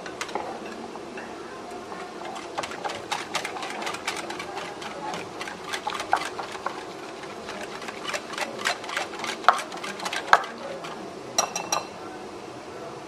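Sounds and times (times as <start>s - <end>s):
whisk beating batter in glass bowl: 1.8s - 11.8s.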